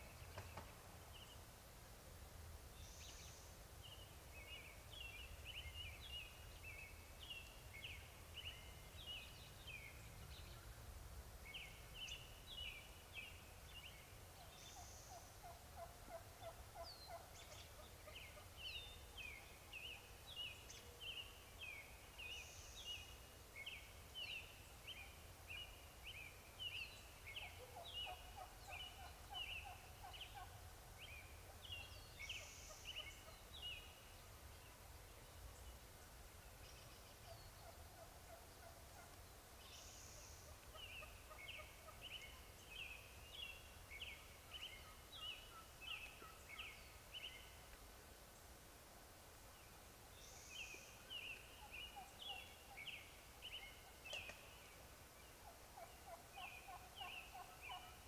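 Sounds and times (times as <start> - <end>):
wild turkey gobbling: 14.8 - 18.5, 27.4 - 30.6, 37.2 - 42.4, 55.4 - 58.0.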